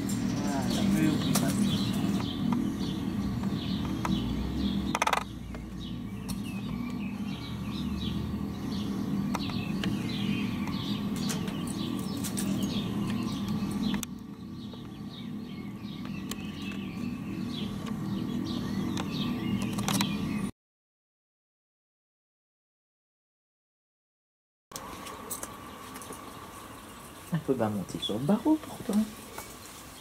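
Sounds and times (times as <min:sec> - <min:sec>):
small birds chirping: 0:00.0 - 0:20.5, 0:24.8 - 0:30.0
steady low hum: 0:00.0 - 0:20.5.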